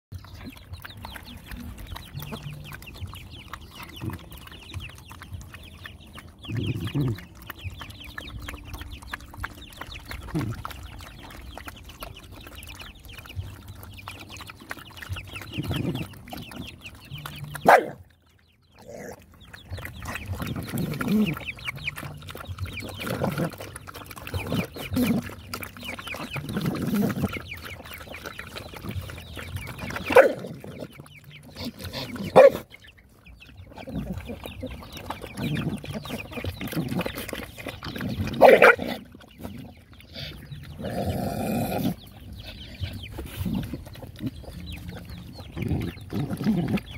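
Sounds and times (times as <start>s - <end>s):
dogs lapping and slurping food: 0.1s - 46.9s
wet chewing and licking: 0.1s - 46.9s.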